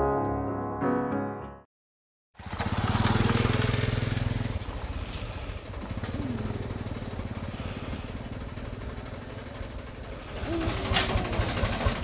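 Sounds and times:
tractor diesel engine chugging: 2.4s - 12.0s.

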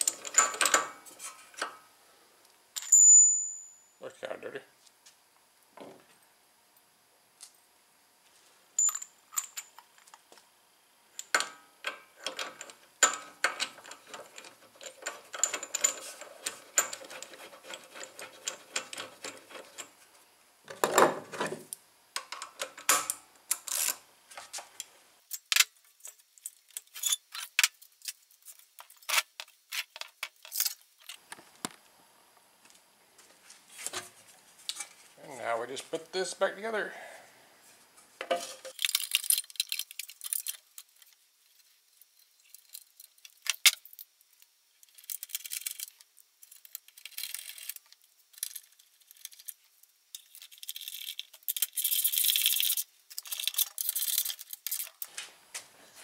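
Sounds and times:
metal tools clinking: 8.8s - 9.8s, 12.2s - 19.9s.

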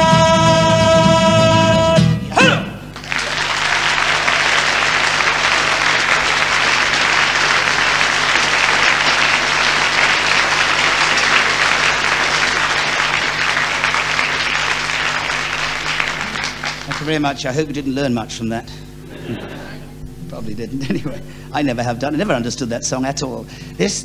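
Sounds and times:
audience applauding: 2.9s - 17.6s.

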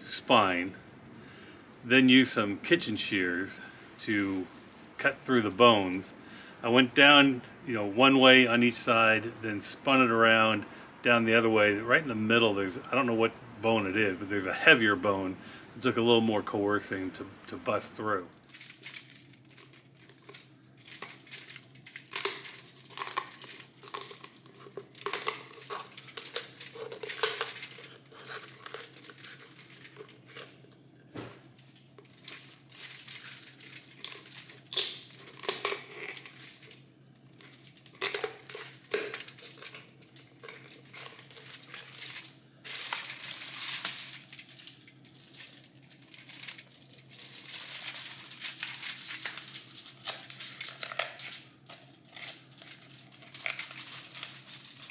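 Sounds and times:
aluminium foil crinkling: 17.7s - 54.9s.

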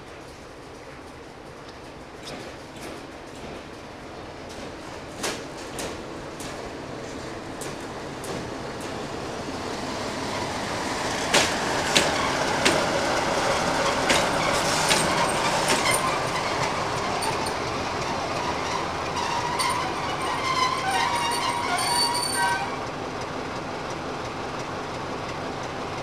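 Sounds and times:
locomotive rolling past: 0.0s - 26.0s
high wheel squeal: 13.8s - 22.9s.

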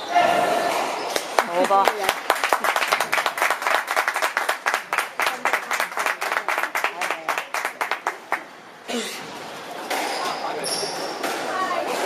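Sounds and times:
spectators clapping: 1.1s - 8.5s.

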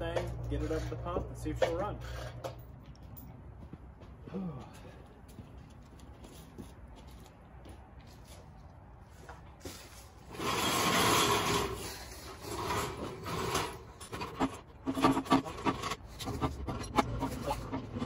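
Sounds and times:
rough scraping and rubbing: 0.0s - 2.6s, 9.6s - 18.0s.

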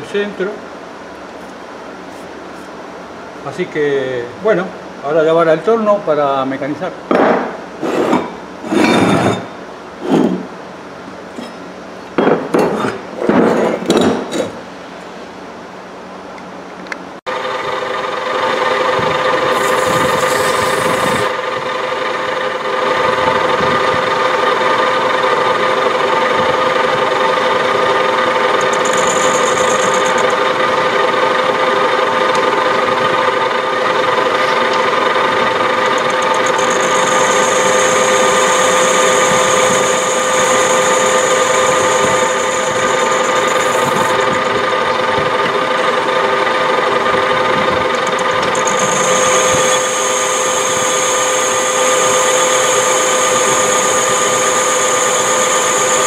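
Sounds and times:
metal lathe running: 17.3s - 56.0s.

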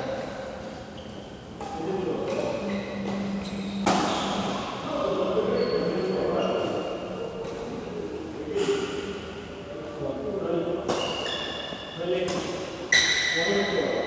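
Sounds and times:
racket hitting shuttlecock: 1.6s - 4.8s
players' voices: 1.7s - 10.8s.

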